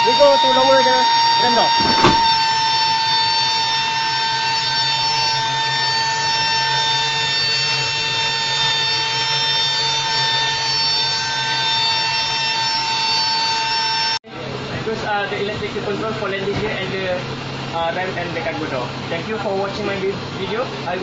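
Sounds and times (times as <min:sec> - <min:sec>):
hydraulic pump whining: 0:00.0 - 0:14.2.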